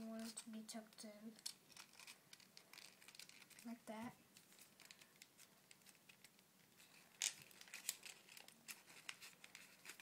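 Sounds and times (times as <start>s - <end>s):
paper rustling and crinkling: 1.7s - 3.8s, 4.4s - 10.0s.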